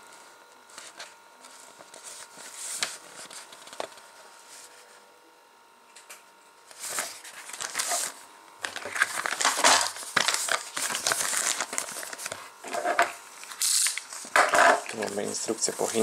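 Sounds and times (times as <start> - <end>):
paper sheets rustling: 0.7 - 5.0, 6.6 - 16.0.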